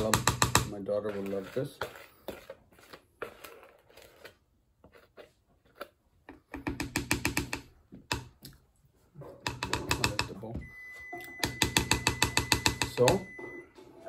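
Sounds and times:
spatula scraping a plastic bowl: 0:00.0 - 0:06.6.

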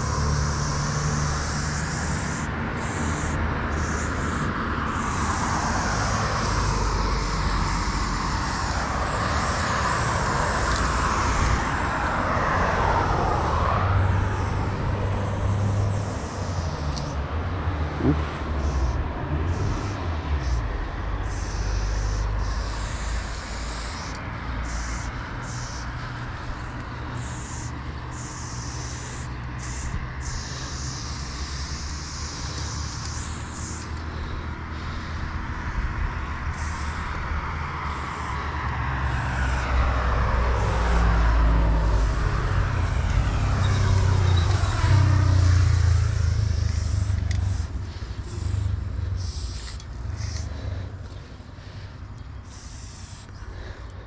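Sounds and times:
spray paint can hissing: 0:00.0 - 0:17.3, 0:18.5 - 0:35.2, 0:36.5 - 0:50.6, 0:52.4 - 0:53.8
low traffic rumble: 0:00.0 - 0:54.0
vehicle passing: 0:00.0 - 0:54.0.

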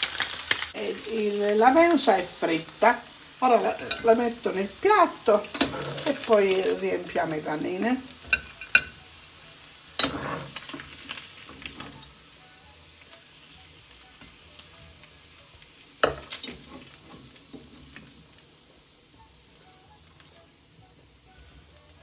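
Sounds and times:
lard sizzling in a pan: 0:00.0 - 0:22.0
cutlery clattering on a plate: 0:05.5 - 0:06.1, 0:08.3 - 0:09.0, 0:10.0 - 0:12.0.

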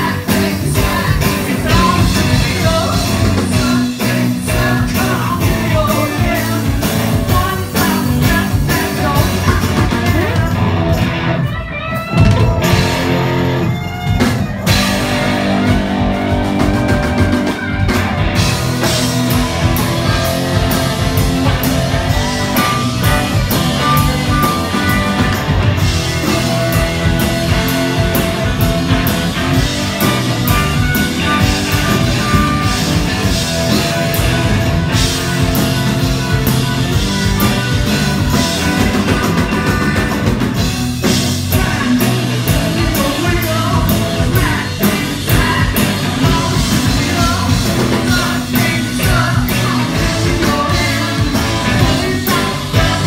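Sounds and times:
person singing lead vocal: 0:00.0 - 0:10.8, 0:41.0 - 0:53.0
live rock band playing: 0:00.0 - 0:53.0
harmonica solo: 0:19.4 - 0:28.6.

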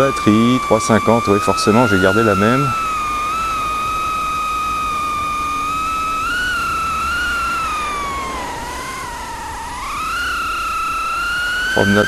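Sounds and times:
drone propellers whining: 0:00.0 - 0:12.0.

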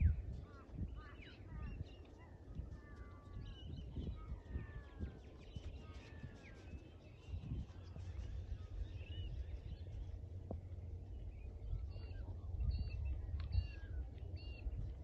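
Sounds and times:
low irregular rumble: 0:00.0 - 0:15.0
birds chirping and whistling: 0:03.3 - 0:10.1.

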